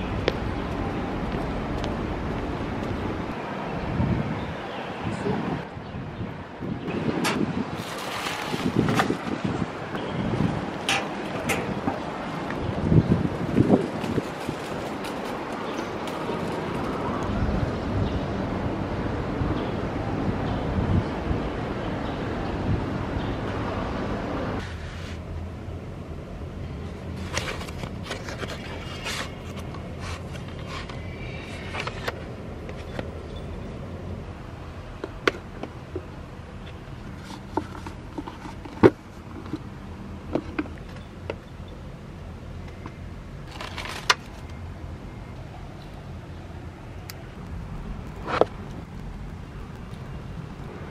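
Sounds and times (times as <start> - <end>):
wind blowing on microphone: 0.0 - 24.6
rustling: 13.6 - 17.1.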